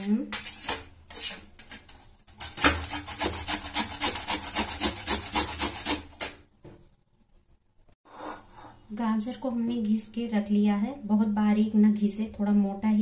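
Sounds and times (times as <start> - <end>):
carrot grating on metal grater: 2.4 - 6.2.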